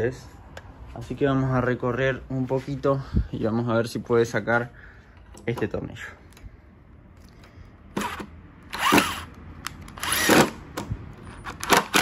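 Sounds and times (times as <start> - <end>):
impact driver bursts: 7.9 - 10.8, 11.4 - 12.0.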